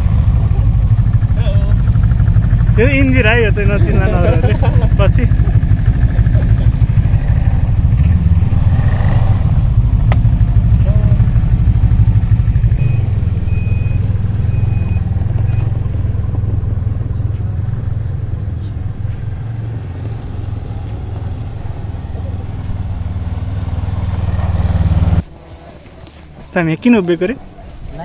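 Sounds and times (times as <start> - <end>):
snowmobile engines humming: 0.0 - 28.0
short high beeps: 12.6 - 16.1.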